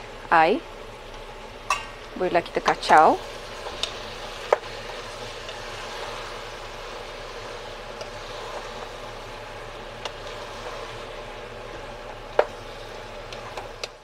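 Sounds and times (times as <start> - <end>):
food sizzling: 0.0 - 14.0
spatula stirring vegetables in pot: 0.8 - 14.0.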